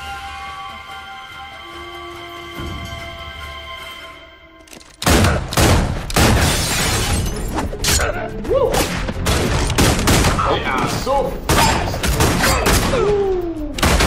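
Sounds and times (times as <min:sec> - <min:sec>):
tense music: 0:00.0 - 0:14.0
revolver gunshots: 0:09.2 - 0:10.5.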